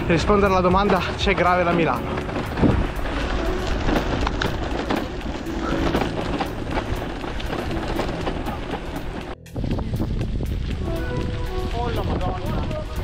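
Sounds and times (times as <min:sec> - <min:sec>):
tyre noise on rough surface: 0:00.0 - 0:13.0
wind on microphone: 0:02.4 - 0:06.0, 0:06.8 - 0:13.0.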